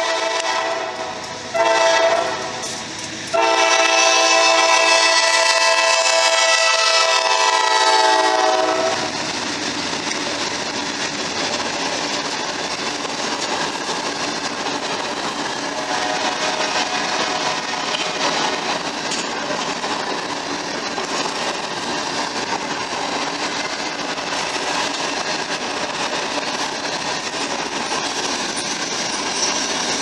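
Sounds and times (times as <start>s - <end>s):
locomotive air horn: 0.0s - 9.1s, 15.7s - 18.0s
train wheels on rail: 0.0s - 30.0s.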